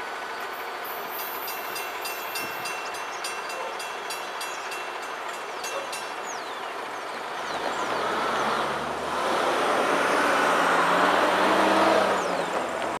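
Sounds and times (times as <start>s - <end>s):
rumble of receding train: 0.0s - 13.0s
car engines pulling away: 6.2s - 13.0s.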